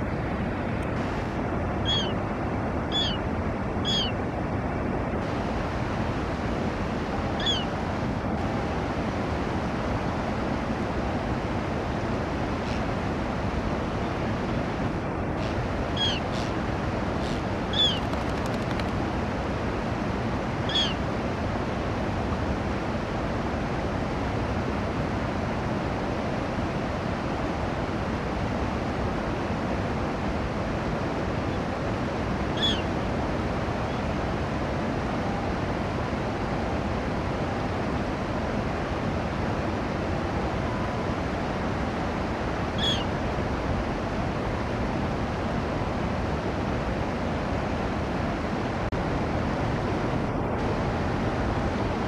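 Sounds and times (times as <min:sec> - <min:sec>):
steady background noise: 0:00.0 - 0:52.0
gull calling: 0:01.8 - 0:02.2, 0:02.9 - 0:03.2, 0:03.8 - 0:04.2, 0:07.4 - 0:07.7, 0:15.4 - 0:16.6, 0:17.2 - 0:18.7, 0:20.7 - 0:21.0, 0:32.6 - 0:32.9, 0:42.8 - 0:43.1.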